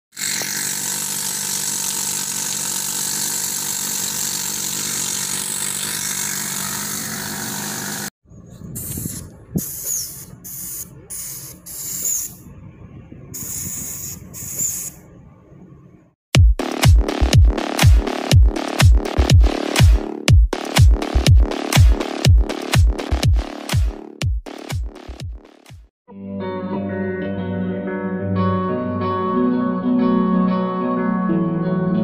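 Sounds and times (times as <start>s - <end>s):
short hissing bursts: 8.8s - 12.4s, 13.4s - 15.0s
music with heavy beat: 16.4s - 25.9s.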